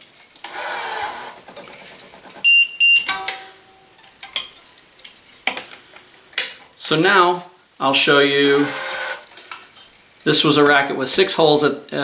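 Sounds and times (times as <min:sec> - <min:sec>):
stringing machine motor running: 0:00.4 - 0:01.7, 0:08.5 - 0:09.2
loud beep: 0:02.5 - 0:03.3.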